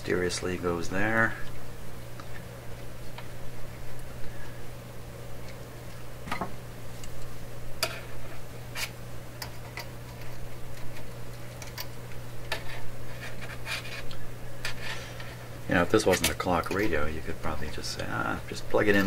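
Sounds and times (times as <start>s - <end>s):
steady low hum: 0.0s - 19.0s
clicks and taps of tools and wire: 11.6s - 12.6s.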